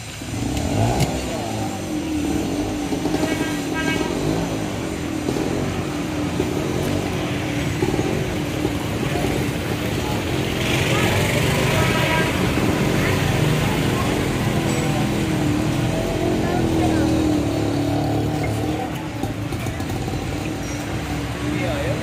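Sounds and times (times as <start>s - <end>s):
vehicles passing: 0.0s - 22.0s
people talking: 6.7s - 22.0s.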